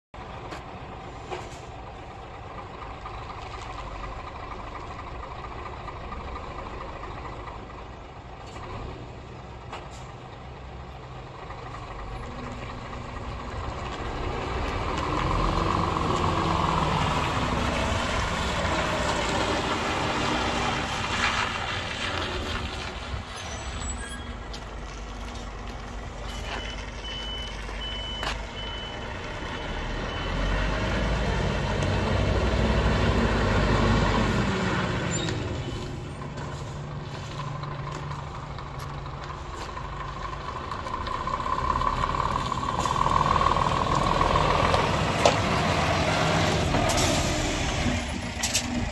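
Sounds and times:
truck diesel engine running: 0:00.2 - 0:48.9
reversing beeps: 0:26.3 - 0:30.6.

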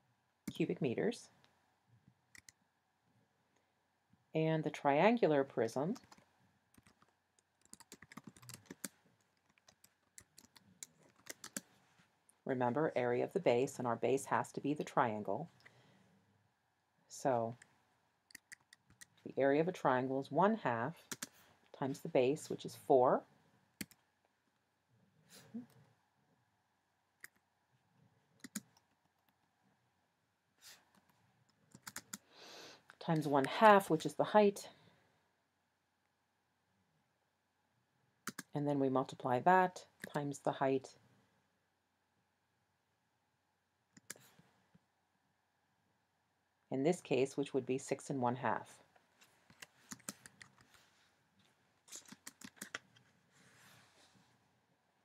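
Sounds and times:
computer keyboard typing: 0:06.8 - 0:11.7, 0:18.3 - 0:19.1, 0:21.1 - 0:21.3, 0:23.8 - 0:24.0, 0:28.4 - 0:28.8, 0:31.7 - 0:32.2, 0:38.3 - 0:38.5, 0:49.9 - 0:50.6, 0:51.9 - 0:52.8.

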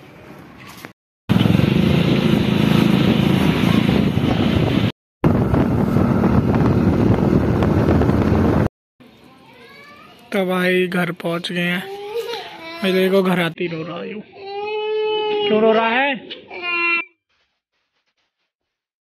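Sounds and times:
motorcycle engine running: 0:01.3 - 0:08.7
wind noise on microphone: 0:01.4 - 0:08.7.

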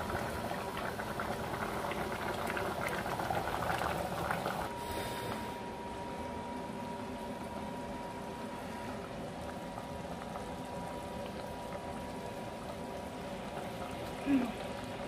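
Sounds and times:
curry bubbling in a pot: 0:00.0 - 0:04.8, 0:07.0 - 0:15.0.

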